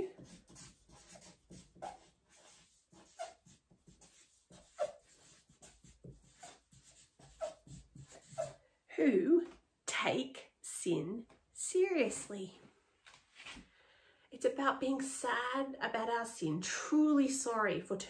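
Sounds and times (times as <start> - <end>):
marker writing on paper: 0.0 - 8.6
marker squeaks: 0.1 - 8.6.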